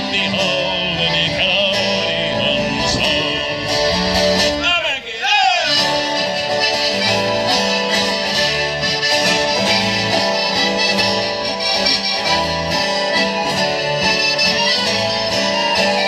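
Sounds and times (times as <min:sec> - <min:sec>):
keyboard melody: 0:00.0 - 0:04.7, 0:05.7 - 0:16.0
bass line: 0:00.0 - 0:05.0
guitar: 0:00.0 - 0:16.0.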